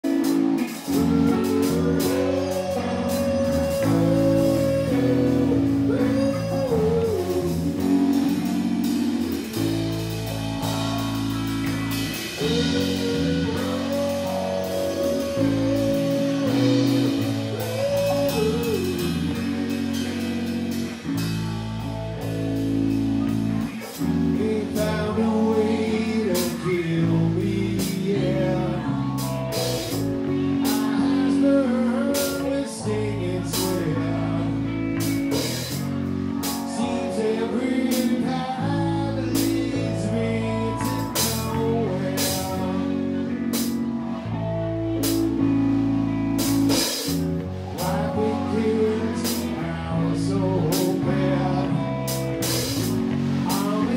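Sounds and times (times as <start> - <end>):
man singing lead: 0.0 - 45.5, 46.4 - 53.9
drum kit with cymbal hits: 0.0 - 53.9
electric bass guitar: 0.0 - 53.9
electric guitar: 0.0 - 53.9.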